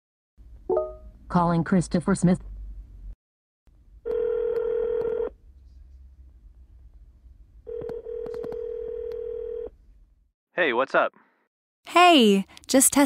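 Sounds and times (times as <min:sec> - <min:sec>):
phone ringback tone: 0:04.1 - 0:05.3, 0:07.7 - 0:09.7.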